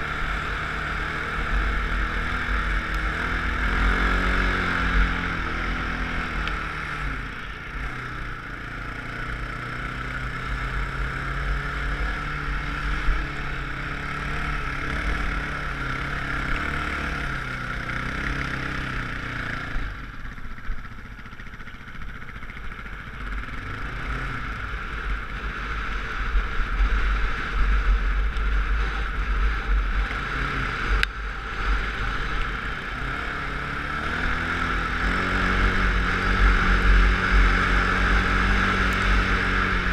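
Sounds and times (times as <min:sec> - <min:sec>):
dirt bike engine revving: 0:00.0 - 0:20.3, 0:22.2 - 0:39.9
low wind rumble on microphone: 0:24.4 - 0:39.9.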